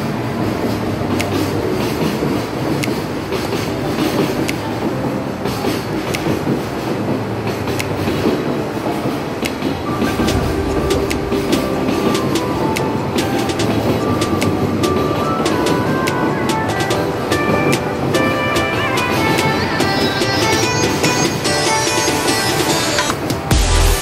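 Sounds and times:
train rumble: 0.0 - 23.5
steady tone: 9.2 - 13.6.

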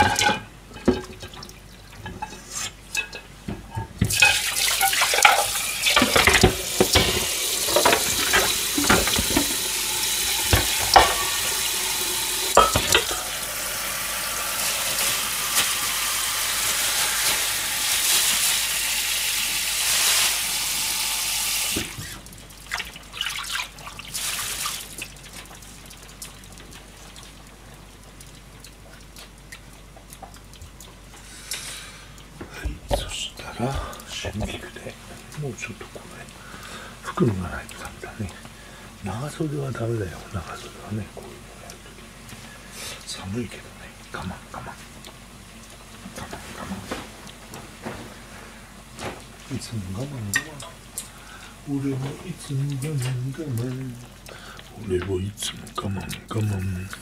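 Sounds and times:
pots and dishes knocking: 0.0 - 1.4, 3.0 - 11.6, 12.5 - 13.4
tap water running into sink: 0.0 - 31.6, 32.2 - 48.0, 48.9 - 57.0.

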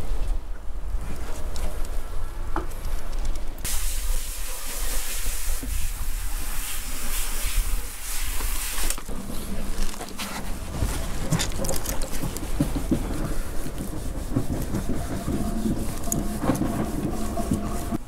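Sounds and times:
steady hiss: 3.6 - 18.0
wind buffeting microphone: 9.1 - 18.0.

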